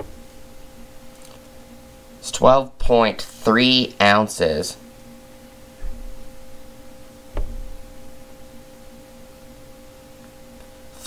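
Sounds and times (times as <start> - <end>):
faint hum of pure tones: 0.0 - 11.0
low thump: 5.8 - 6.2, 7.3 - 7.8.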